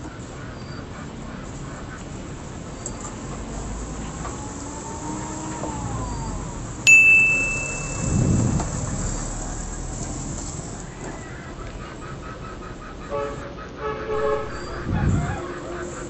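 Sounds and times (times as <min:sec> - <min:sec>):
electronic ding: 0:06.9 - 0:08.8
dull low rumble: 0:07.7 - 0:09.4, 0:14.1 - 0:15.4.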